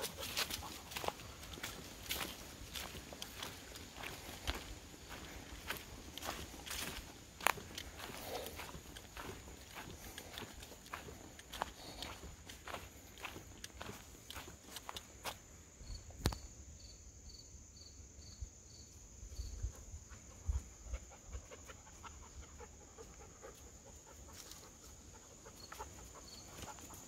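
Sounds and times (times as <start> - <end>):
footsteps crunching on dirt trail: 0.0 - 15.5, 24.3 - 27.0
high insect chirps: 0.0 - 23.6
insects buzzing: 0.0 - 27.0.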